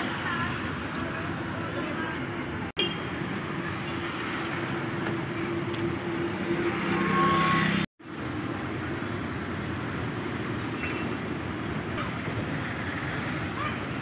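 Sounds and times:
road traffic: 0.0 - 14.0.

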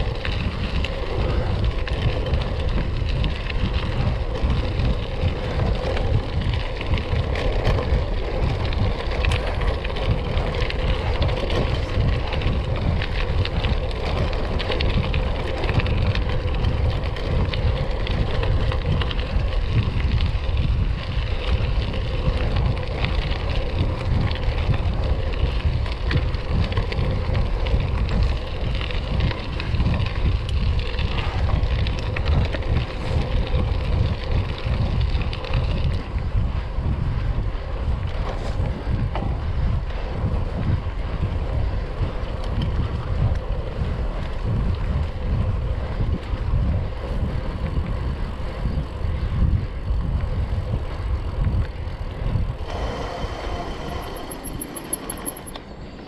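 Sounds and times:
bicycle tyres on gravel: 0.0 - 56.0
wind buffeting microphone: 0.0 - 56.0
loose stones ticking: 54.0 - 55.6.

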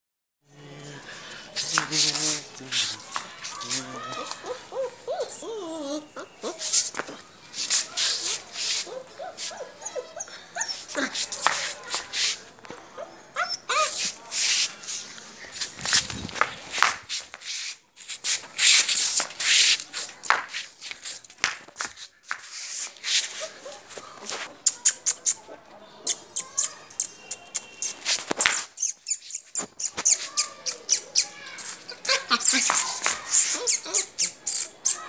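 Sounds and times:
scuffing and rustling: 1.5 - 4.6, 6.4 - 10.1, 10.7 - 12.8, 13.6 - 24.6
puppy yipping and whimpering: 4.1 - 6.8, 8.6 - 11.3, 13.0 - 14.2, 28.8 - 35.0.

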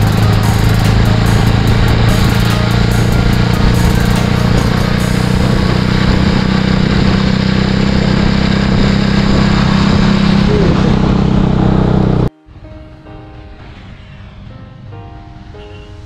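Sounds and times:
motorcycle engine cruising: 0.0 - 12.3.

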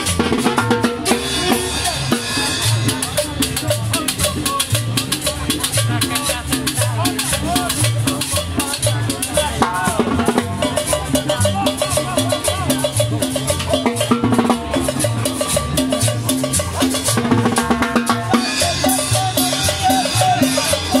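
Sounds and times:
conga drums: 0.0 - 21.0
crowd voices: 0.0 - 21.0
dance band playing: 0.0 - 21.0
saxophones: 10.4 - 21.0.

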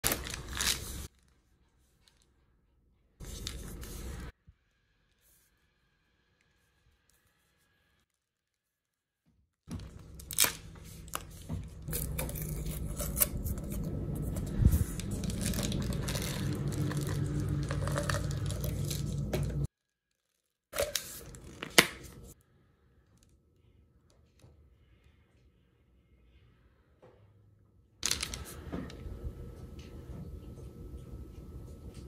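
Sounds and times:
plastic seal crinkling and tearing: 0.0 - 1.4, 14.9 - 22.0.

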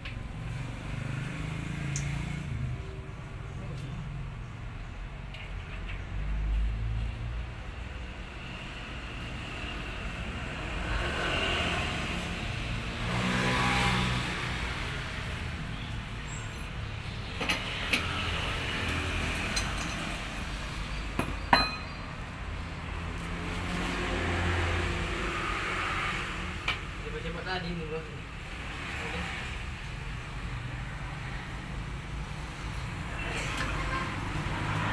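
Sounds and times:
vehicle engines rumbling: 0.0 - 34.9.

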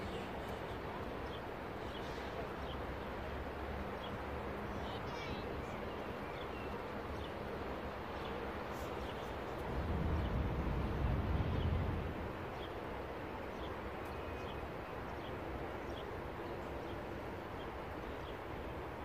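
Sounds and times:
low rumble: 9.6 - 12.6.

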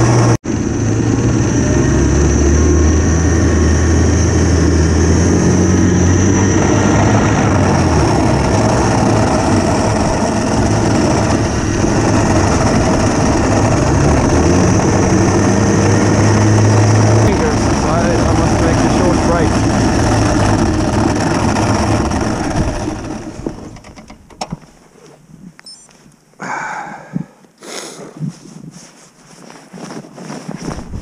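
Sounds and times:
electric snowmobile running: 0.0 - 24.1
high motor whine: 0.0 - 24.4.

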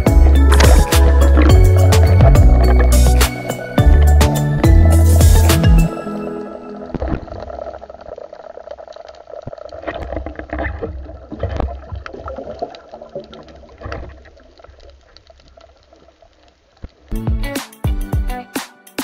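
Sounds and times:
muffled underwater rush: 0.0 - 5.9, 6.5 - 17.1
sharp clicks and crackles: 6.9 - 17.1.

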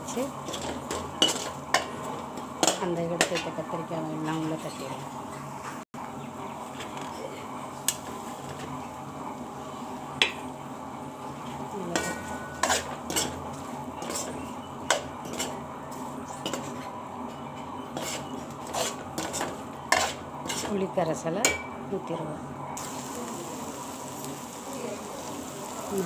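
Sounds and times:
metal spoon scraping metal pan: 0.4 - 2.0, 11.9 - 15.6, 17.9 - 20.8.

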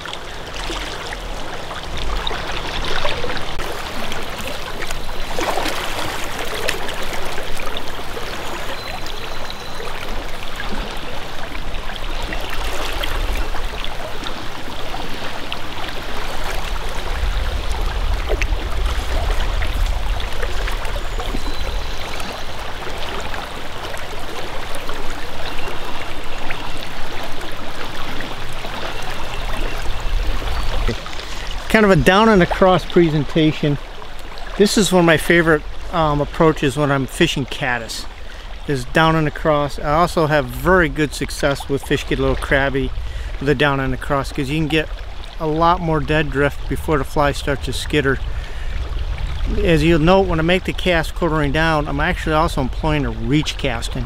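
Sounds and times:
river current over riffle: 0.0 - 54.0
low rumbling: 10.6 - 25.9, 26.9 - 36.8, 38.0 - 54.0.

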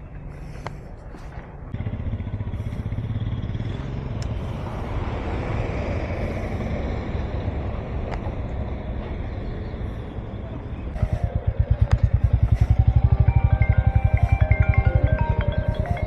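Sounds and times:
wind and road noise: 0.0 - 16.0
motorcycle engine running: 1.7 - 4.7, 10.9 - 16.0.

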